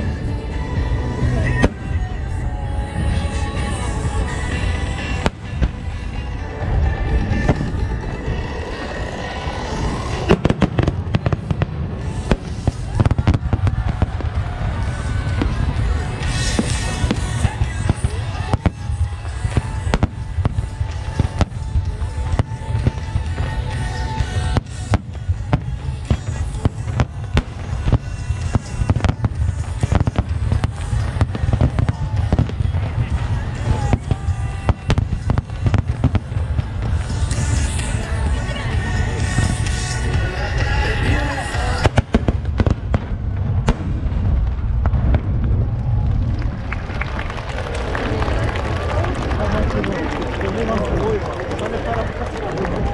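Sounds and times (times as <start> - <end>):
firework crackling: 0.0 - 52.9
firework booms rumbling: 6.6 - 38.0, 38.8 - 47.3
firework bang: 41.7 - 46.5.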